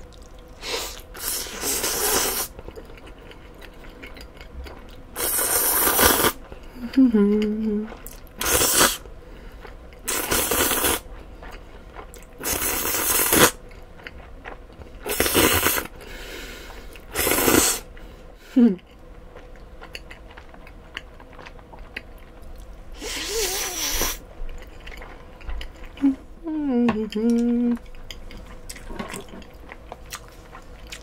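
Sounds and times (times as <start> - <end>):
chewing: 0.0 - 18.1, 18.8 - 22.8, 23.7 - 26.2, 27.0 - 31.0
noodles slurped: 0.1 - 2.6, 5.2 - 6.4, 8.0 - 9.0, 10.0 - 11.0, 12.4 - 13.6, 23.0 - 24.2.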